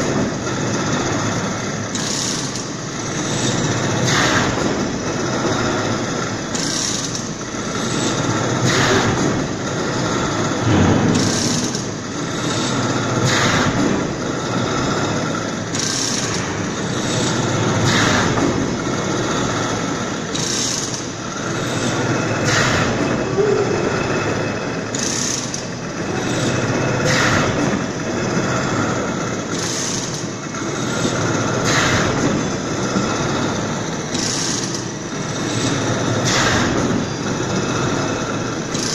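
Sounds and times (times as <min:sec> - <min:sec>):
machine drone: 0:00.0 - 0:38.9
carriage moving back and forth: 0:05.3 - 0:23.1.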